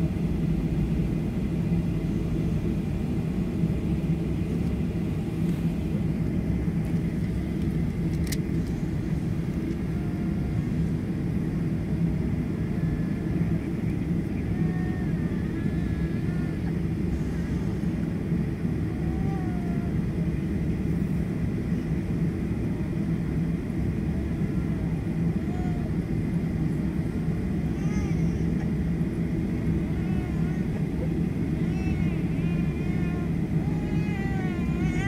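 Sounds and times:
low aircraft cabin rumble: 0:00.0 - 0:35.0
faint voices: 0:23.1 - 0:35.0.

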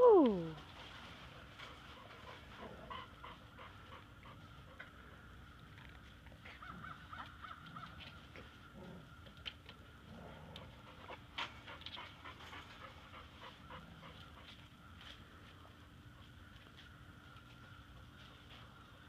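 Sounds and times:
dog panting: 0:01.6 - 0:05.1, 0:10.6 - 0:14.7.

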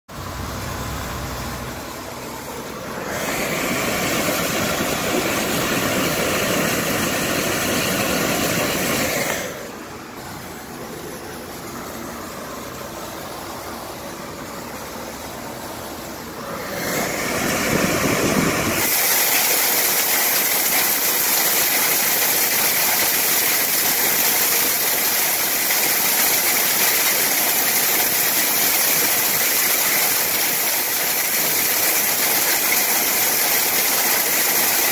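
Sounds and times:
air rushing through metal ductwork: 0:00.1 - 0:34.9.

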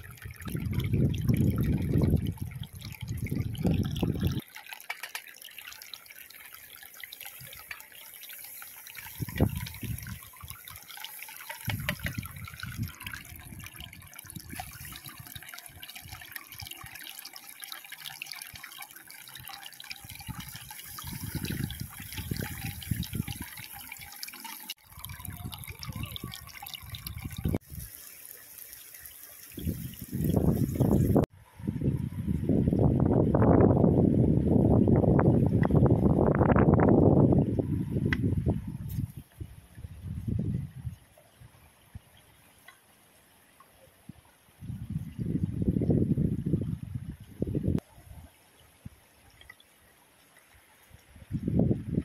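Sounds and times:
eggs sizzling in a frying pan: 0:07.2 - 0:12.0.

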